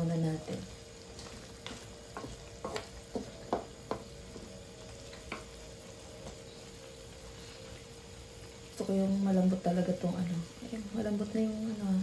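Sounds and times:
faint simmering sizzle: 0:00.0 - 0:12.0
faint steady hum: 0:00.0 - 0:12.0
wooden spatula knocking in wok: 0:01.2 - 0:04.5, 0:05.1 - 0:05.6.

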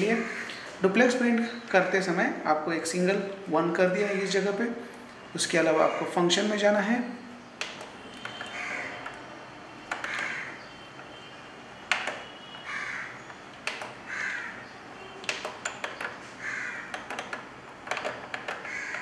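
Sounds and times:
crow cawing: 0:00.2 - 0:00.7, 0:08.4 - 0:09.0, 0:10.0 - 0:10.7, 0:12.6 - 0:13.3, 0:14.0 - 0:14.8, 0:16.4 - 0:17.0, 0:18.6 - 0:19.0
clicks of keys pressed: 0:07.6 - 0:11.1, 0:11.9 - 0:12.4, 0:13.3 - 0:14.0, 0:15.2 - 0:16.3, 0:16.9 - 0:19.0.

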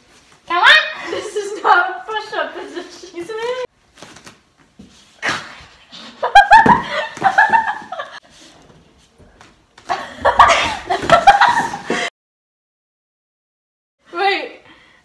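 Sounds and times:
girls laughing: 0:06.0 - 0:08.2, 0:09.9 - 0:12.1.

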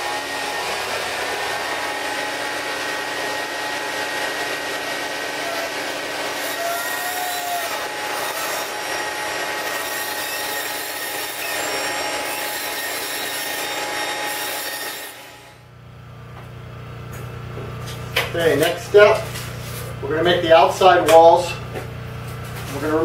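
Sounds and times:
table saw cutting foam: 0:00.0 - 0:15.7.

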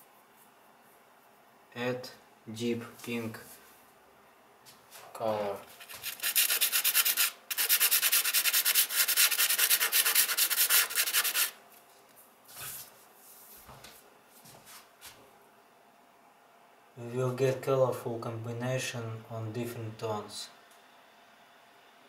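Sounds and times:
chalk scraping on sandpaper: 0:05.8 - 0:11.6.

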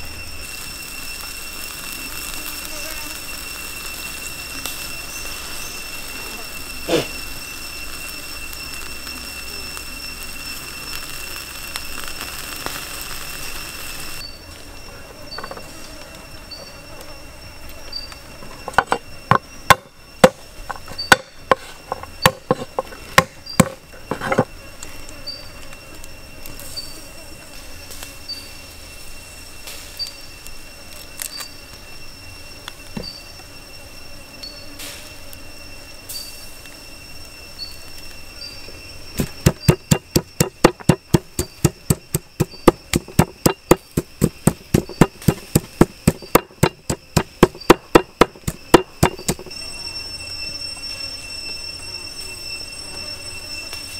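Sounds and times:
insects chirping: 0:00.0 - 0:53.9
cleaver chopping on wooden board: 0:39.4 - 0:49.5.

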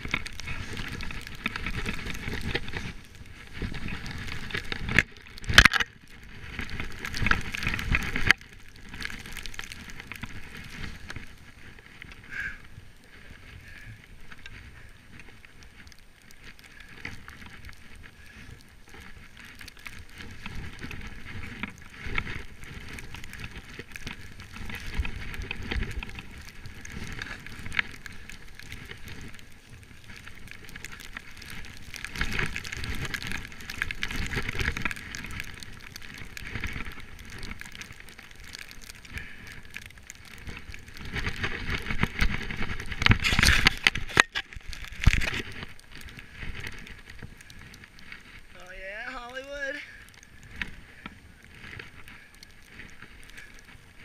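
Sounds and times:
skis swishing through snow: 0:00.0 - 0:05.5, 0:06.1 - 0:54.0.

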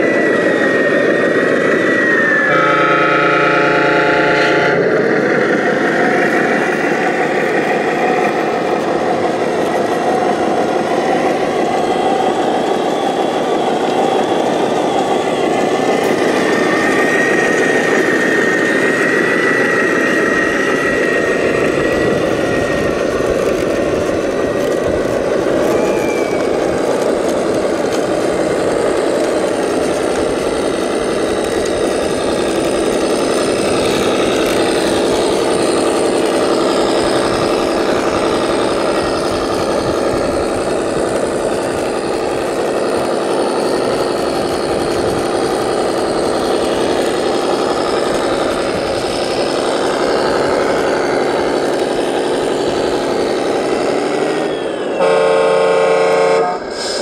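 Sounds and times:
toy truck engine running: 0:00.0 - 0:57.0
truck air horn: 0:02.5 - 0:05.0, 0:55.0 - 0:57.0.

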